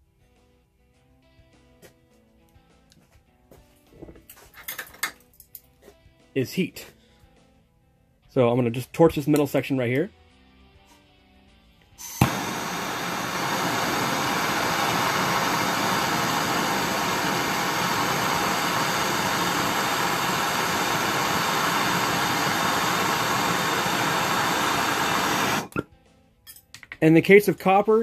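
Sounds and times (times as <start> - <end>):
gas torch hissing: 12.0 - 25.8.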